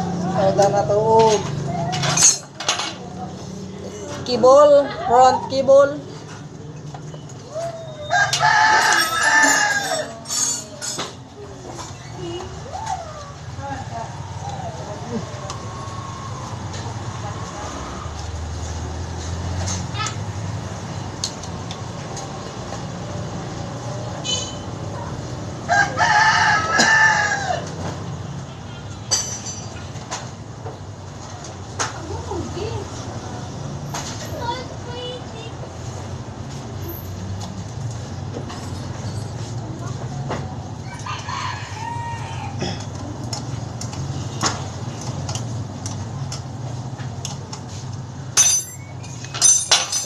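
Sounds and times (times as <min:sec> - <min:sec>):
rooster crowing: 0:07.5 - 0:10.4, 0:25.6 - 0:27.8, 0:40.8 - 0:42.8
hand tools clicking and tapping: 0:42.8 - 0:50.0.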